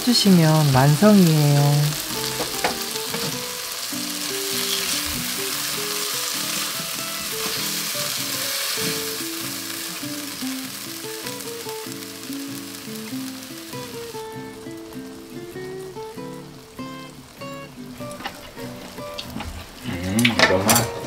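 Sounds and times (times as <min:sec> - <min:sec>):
mushrooms sizzling in wok: 0:00.0 - 0:21.0
soft background music: 0:00.0 - 0:21.0.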